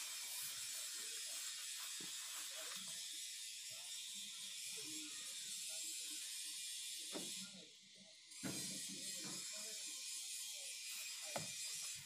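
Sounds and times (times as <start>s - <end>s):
steady hiss: 0.0s - 3.0s.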